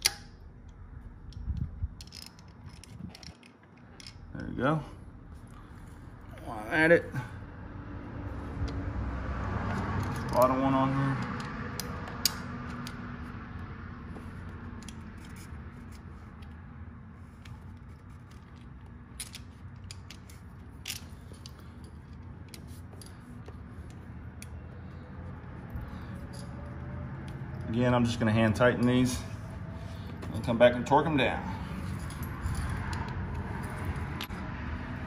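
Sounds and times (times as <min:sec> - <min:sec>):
small metal parts clicking: 0:00.0 - 0:04.5, 0:17.4 - 0:24.6.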